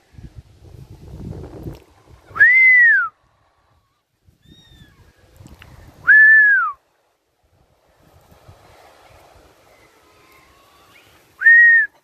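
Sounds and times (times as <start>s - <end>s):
person whistling: 2.4s - 3.1s, 6.1s - 6.8s, 11.4s - 11.9s.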